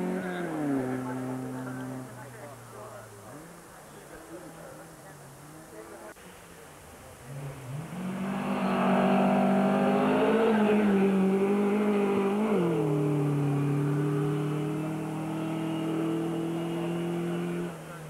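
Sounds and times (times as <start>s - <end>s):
rally car engine revving: 0.0s - 3.4s, 7.2s - 18.0s.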